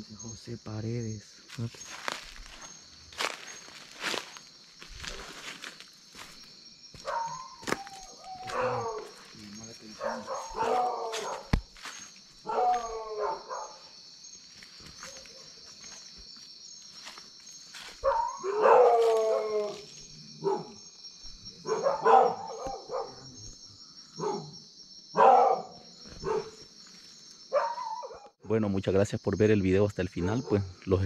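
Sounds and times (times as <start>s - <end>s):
dogs barking: 6.9s - 13.9s, 17.9s - 21.0s, 21.6s - 26.6s, 27.5s - 28.3s, 30.2s - 30.7s
dogs howling: 7.0s - 11.6s, 12.4s - 13.9s, 18.0s - 20.8s, 21.6s - 23.5s, 24.2s - 24.6s, 25.2s - 26.6s, 27.5s - 28.3s.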